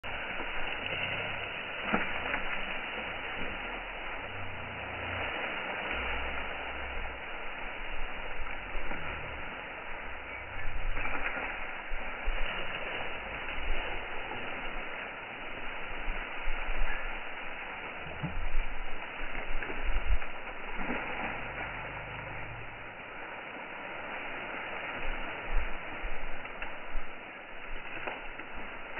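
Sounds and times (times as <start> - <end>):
wind buffeting microphone: 1.9 - 23.0
faint cracks: 27.8 - 28.9.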